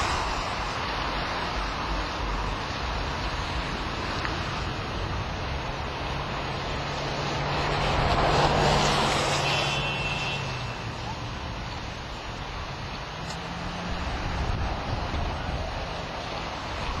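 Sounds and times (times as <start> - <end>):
outdoor noise: 0.0 - 17.0
vehicle passing by: 2.6 - 9.9, 13.1 - 17.0.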